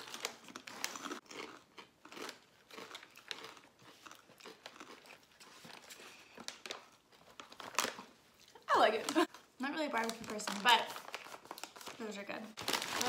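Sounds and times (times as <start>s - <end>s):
crunching chips: 0.0s - 9.4s, 12.6s - 13.0s.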